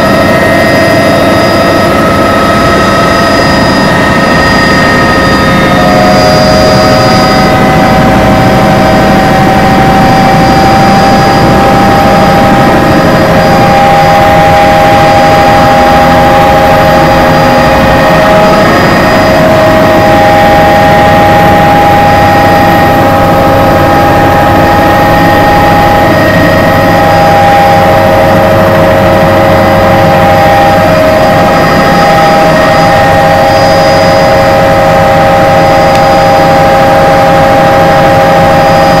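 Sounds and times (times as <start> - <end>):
helicopter engine and rotor drone: 0.0 - 39.0.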